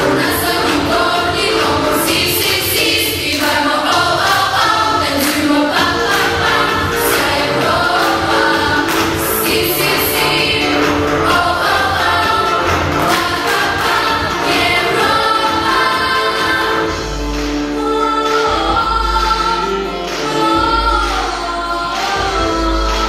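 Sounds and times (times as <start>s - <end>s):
steady dance beat: 0.0s - 17.3s
children singing dance-pop song: 0.0s - 23.0s.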